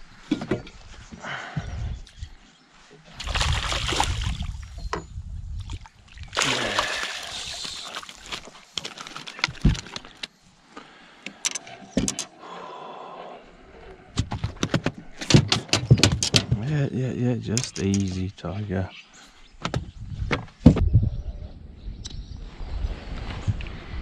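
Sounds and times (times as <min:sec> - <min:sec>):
fish splashing water: 0:03.2 - 0:04.6, 0:05.8 - 0:09.3.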